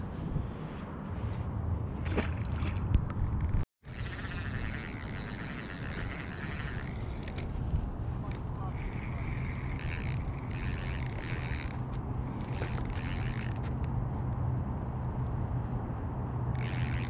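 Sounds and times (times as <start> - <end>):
fishing reel ticking whir: 3.8 - 14.0, 16.6 - 17.0.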